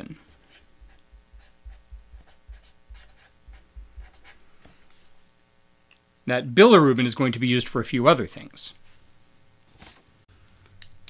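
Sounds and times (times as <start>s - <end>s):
marker scratching on paper: 0.4s - 4.4s
soft low thuds: 0.7s - 4.3s.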